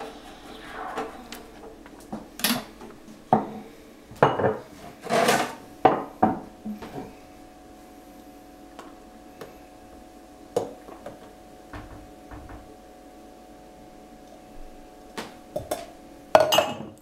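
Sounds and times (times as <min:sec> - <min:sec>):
short scrape: 0:00.0 - 0:02.8
cups and pitcher clinking: 0:15.6 - 0:17.0.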